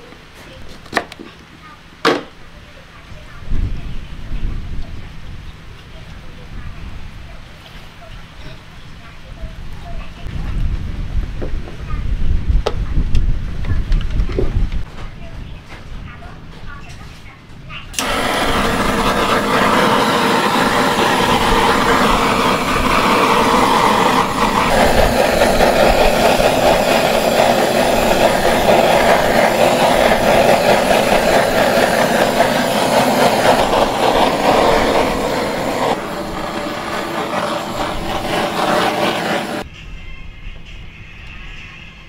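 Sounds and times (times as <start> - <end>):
gas torch hissing: 18.0 - 39.7.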